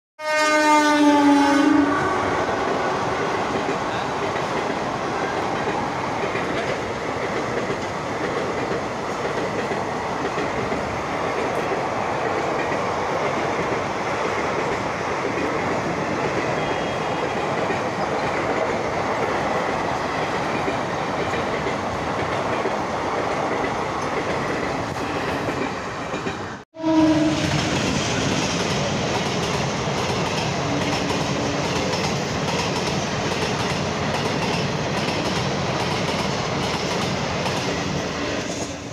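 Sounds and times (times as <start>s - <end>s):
train horn: 0.2s - 2.4s, 16.6s - 17.3s, 26.8s - 27.6s
train wheels clattering on rails: 2.6s - 26.5s, 27.3s - 38.9s.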